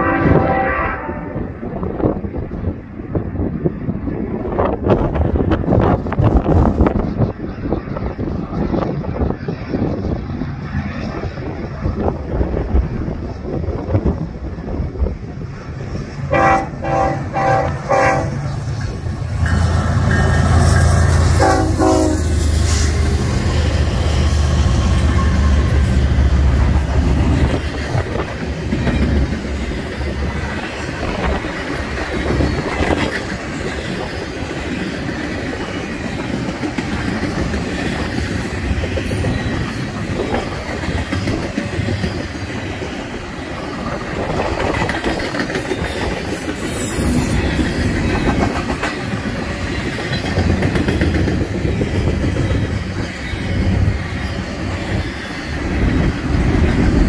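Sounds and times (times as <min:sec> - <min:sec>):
train rumbling and clattering: 0:00.0 - 0:57.0
wheels clicking over rail joints: 0:24.9 - 0:57.0.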